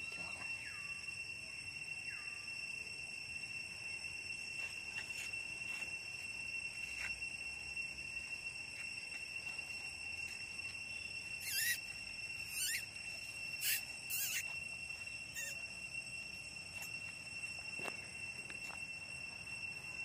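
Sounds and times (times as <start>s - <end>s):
high-pitched insect drone: 0.0s - 20.0s
infant monkey squeals: 11.4s - 11.8s, 12.4s - 12.9s, 13.6s - 14.5s, 15.3s - 15.6s.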